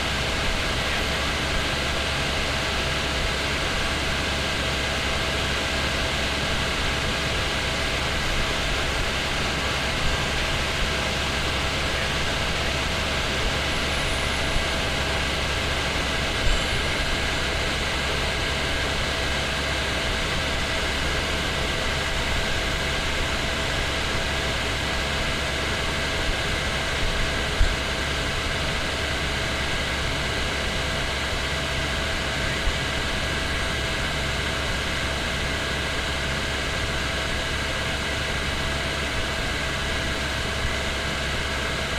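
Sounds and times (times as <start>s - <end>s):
helicopter engine and rotor drone: 0.0s - 41.9s.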